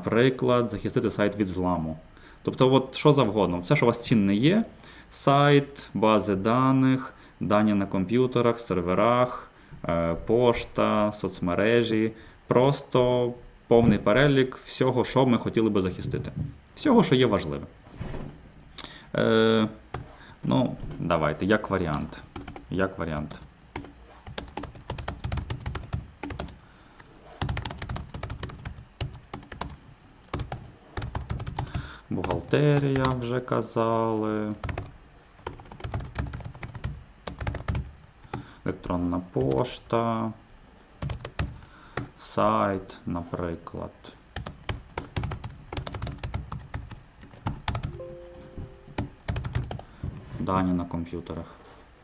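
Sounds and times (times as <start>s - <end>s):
typing on keyboard: 21.9s - 26.6s, 27.4s - 33.2s, 34.5s - 38.4s, 41.0s - 42.1s, 44.4s - 48.0s, 48.9s - 49.8s.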